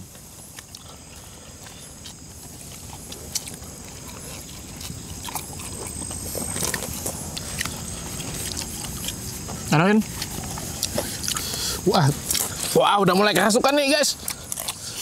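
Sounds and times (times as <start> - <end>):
people chewing: 0.0 - 15.0
small food crunches: 0.4 - 15.0
wet mouth smacking: 10.2 - 12.7.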